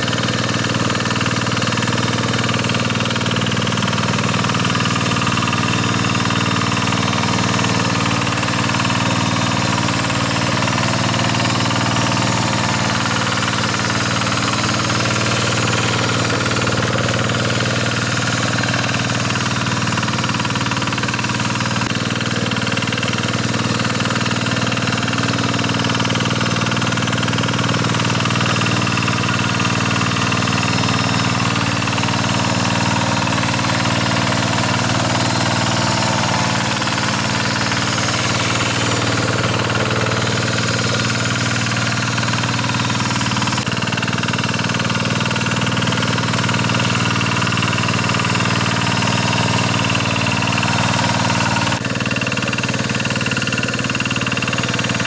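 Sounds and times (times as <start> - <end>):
diesel engine running: 0.0 - 55.0
tiller churning wet soil: 0.0 - 55.0.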